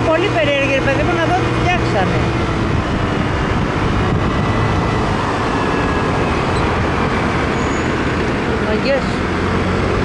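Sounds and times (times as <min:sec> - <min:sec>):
motorcycle engine: 0:00.0 - 0:10.0
wind on microphone: 0:01.4 - 0:08.5.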